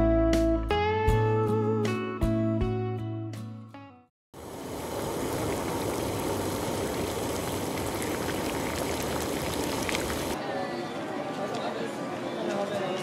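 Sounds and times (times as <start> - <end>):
sauce bubbling in a pot: 4.4 - 10.4.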